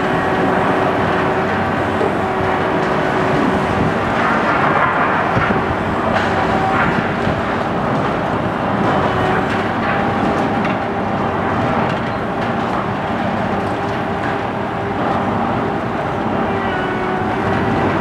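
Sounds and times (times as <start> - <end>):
excavator diesel engine running: 0.0 - 18.0.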